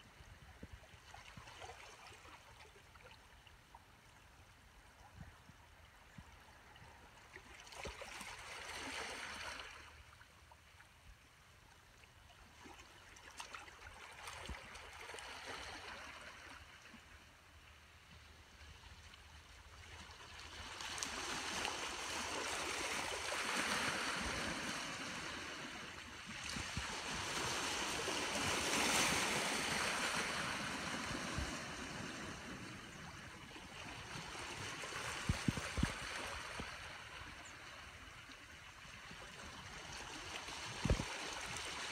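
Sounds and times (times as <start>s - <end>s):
small waves washing onto shore: 18.5s - 41.9s.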